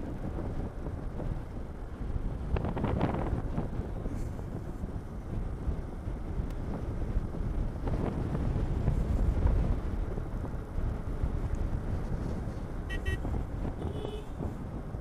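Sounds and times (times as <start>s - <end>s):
motorcycle engine rumble: 0.0s - 15.0s
wind buffeting microphone: 0.0s - 15.0s
motorcycle horn toot: 12.9s - 14.4s.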